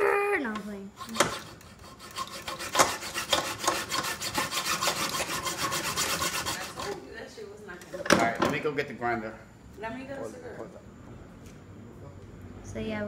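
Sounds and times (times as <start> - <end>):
rhythmic scraping strokes: 1.0 - 7.3.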